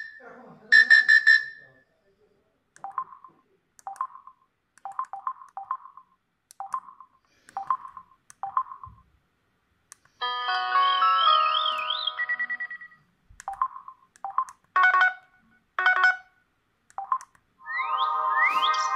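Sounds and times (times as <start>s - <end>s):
phone key beeps: 4.8s - 6.0s, 6.6s - 8.8s, 12.6s - 14.6s, 16.9s - 17.3s
pulsing ringtone: 10.2s - 13.0s, 17.6s - 18.9s
ringtone tune with warbling note: 10.2s - 13.0s, 17.6s - 18.9s.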